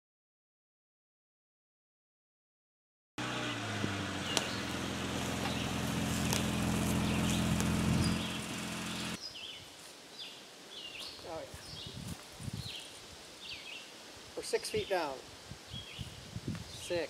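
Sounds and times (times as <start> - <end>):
car engine idling: 3.2 - 9.2
birds chirping: 3.3 - 12.0.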